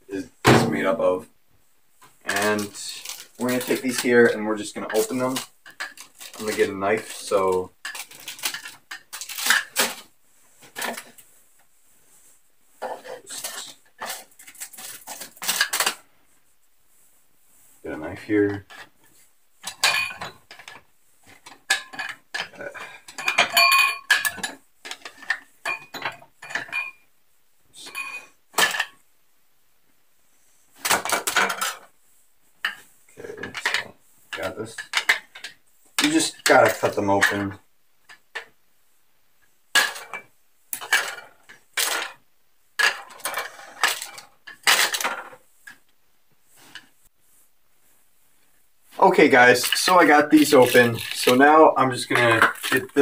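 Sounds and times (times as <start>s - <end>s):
plastic wrapper crinkling: 2.4s - 4.1s, 4.9s - 10.0s, 49.2s - 53.0s.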